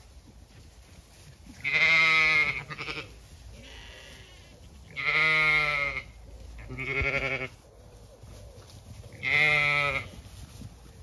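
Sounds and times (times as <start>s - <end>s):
sheep bleating: 1.6s - 7.6s, 9.1s - 10.2s.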